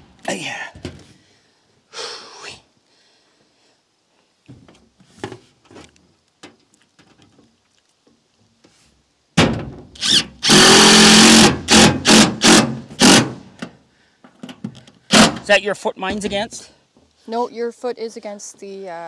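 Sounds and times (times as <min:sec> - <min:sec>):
power drill driving screw: 0:10.0 - 0:13.4, 0:15.1 - 0:15.4.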